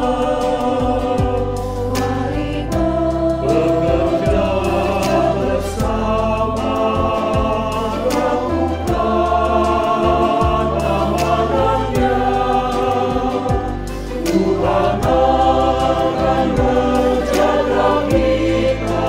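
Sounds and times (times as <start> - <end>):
bass line: 0.0 - 19.0
choir singing: 0.0 - 19.0
steady drum beat: 0.0 - 19.0.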